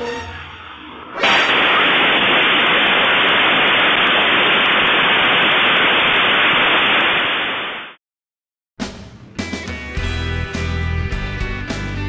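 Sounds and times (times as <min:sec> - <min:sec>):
fountain firework hissing: 0:01.2 - 0:08.0.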